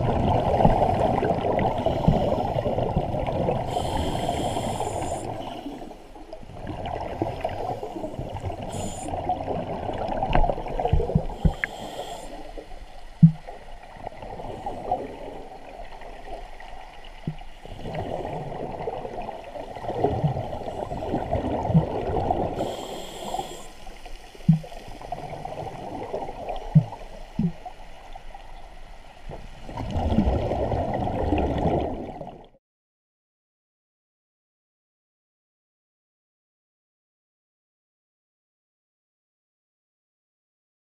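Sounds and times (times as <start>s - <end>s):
exhaled bubbles gurgling underwater: 0.0s - 32.6s
regulator inhalation hiss: 3.7s - 5.8s, 8.7s - 9.1s, 11.3s - 13.0s, 22.6s - 25.0s.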